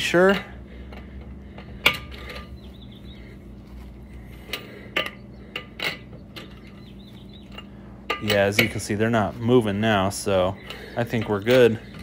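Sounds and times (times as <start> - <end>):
low steady hum: 0.0 - 12.0.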